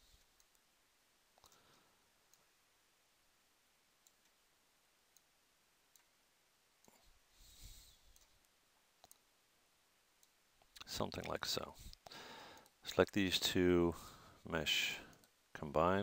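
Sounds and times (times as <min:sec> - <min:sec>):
faint computer mouse clicks: 0:01.4 - 0:01.7, 0:08.1 - 0:09.3.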